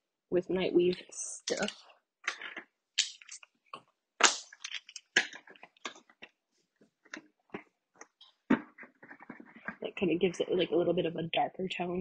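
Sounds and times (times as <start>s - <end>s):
game pieces being handled: 4.3s - 6.4s.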